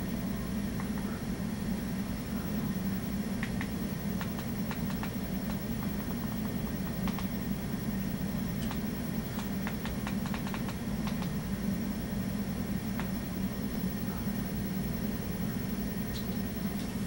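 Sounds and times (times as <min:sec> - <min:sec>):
computer mouse clicks: 0:03.4 - 0:05.6, 0:07.0 - 0:07.3, 0:08.6 - 0:08.8, 0:09.4 - 0:11.3.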